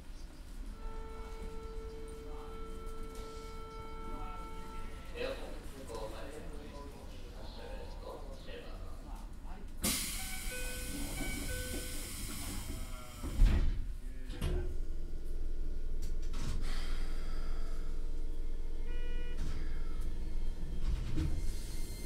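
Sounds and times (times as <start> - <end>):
train doors sliding shut: 9.8 - 14.7, 16.0 - 17.2, 19.3 - 22.0.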